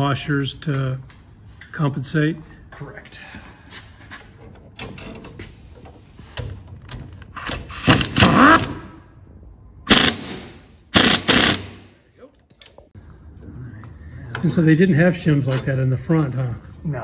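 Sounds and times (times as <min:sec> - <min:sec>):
air wrench rattling: 0:11.0 - 0:11.8.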